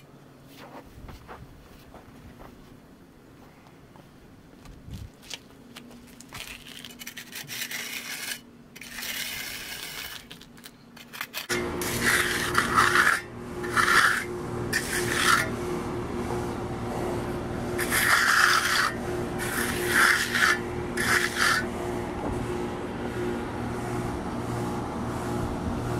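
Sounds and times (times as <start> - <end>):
tool scraping wet concrete: 6.3 - 15.6, 17.8 - 22.3.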